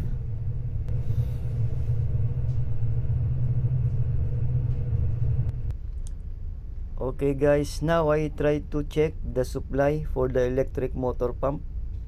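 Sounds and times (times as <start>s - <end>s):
ship machinery rumbling: 0.0s - 5.7s
faint steady hum: 0.0s - 12.0s.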